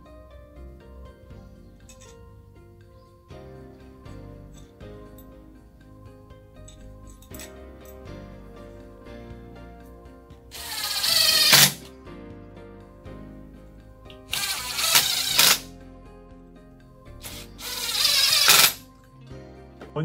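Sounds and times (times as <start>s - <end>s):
cordless drill driving screws: 10.5s - 11.9s, 14.3s - 15.7s, 17.2s - 18.8s.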